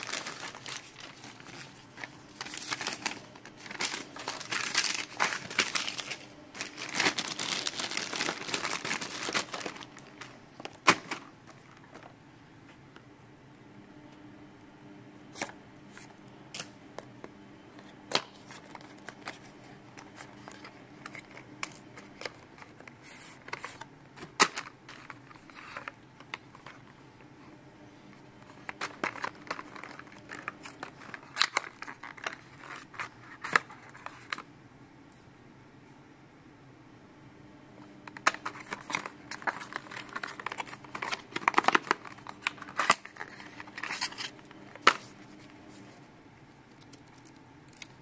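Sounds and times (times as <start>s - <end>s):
packaging rustling: 0.0s - 12.1s, 18.2s - 27.0s, 28.4s - 34.4s, 38.1s - 45.2s.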